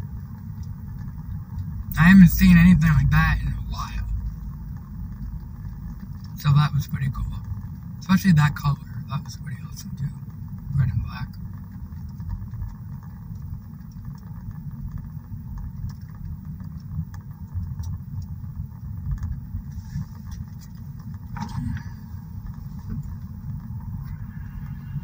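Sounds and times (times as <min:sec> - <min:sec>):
car engine and road noise: 0:00.0 - 0:25.0.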